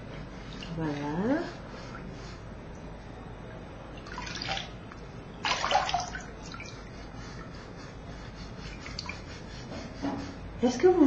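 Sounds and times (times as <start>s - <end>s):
water splashing and dripping in basin: 3.9s - 4.8s, 5.4s - 6.9s.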